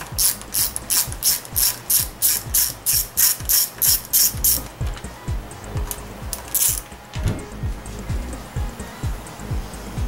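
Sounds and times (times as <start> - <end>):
socket ratchet clicking: 0.0 - 4.7, 5.9 - 6.9.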